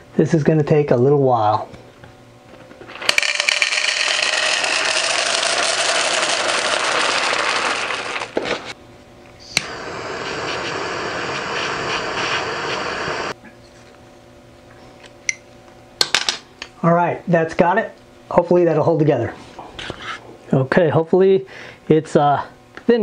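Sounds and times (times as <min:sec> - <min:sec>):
butane torch hissing: 0:04.5 - 0:08.8, 0:09.5 - 0:13.4
torch lighting click: 0:09.5 - 0:13.4
loud rushing hiss: 0:09.6 - 0:13.4.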